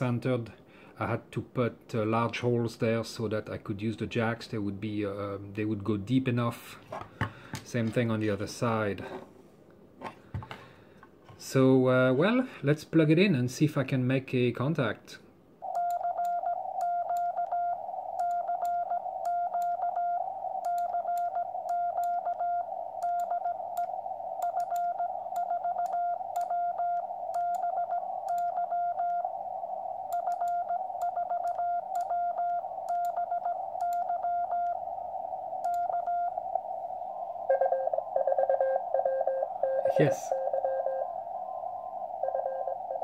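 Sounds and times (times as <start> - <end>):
morse code beeps: 15.6 - 29.3, 30.1 - 34.8, 35.6 - 36.5, 37.5 - 41.1, 42.2 - 43.0
lower-pitched morse signal: 15.6 - 43.0
receiver hiss: 15.6 - 43.0.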